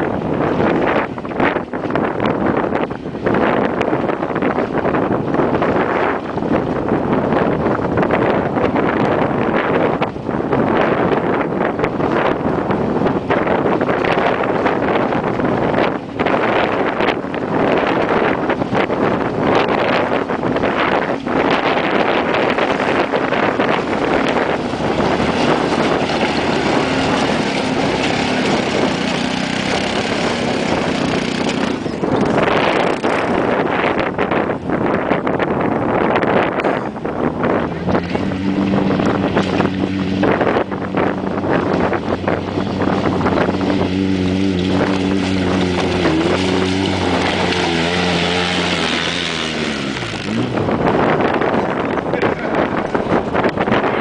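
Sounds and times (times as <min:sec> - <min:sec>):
utility vehicle engine drone: 0:00.0 - 0:54.0
wind buffeting microphone: 0:00.0 - 0:54.0
tyres crunching over gravel: 0:21.1 - 0:32.1, 0:43.1 - 0:50.5.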